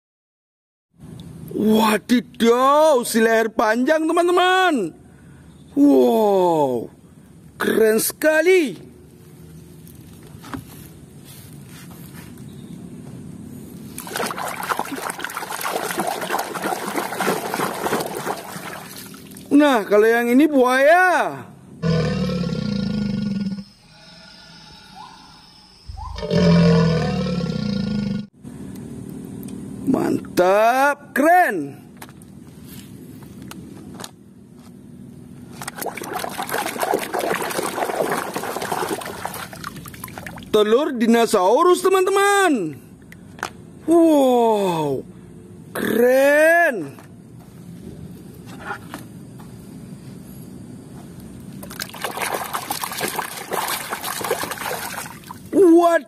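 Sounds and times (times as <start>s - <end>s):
hand scrubbing toy underwater: 14.0s - 19.3s, 35.6s - 40.5s, 51.8s - 55.4s
water sloshing in plastic basin: 14.0s - 19.5s, 35.6s - 40.5s, 51.6s - 55.5s.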